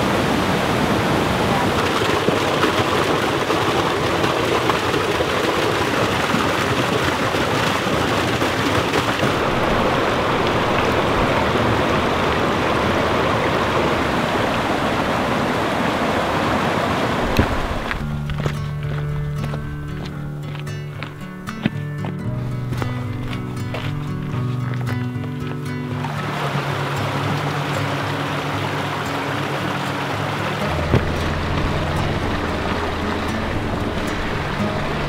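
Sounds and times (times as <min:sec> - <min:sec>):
creek rushing over rocks: 0:00.0 - 0:35.0
music with low held tones: 0:17.9 - 0:35.0.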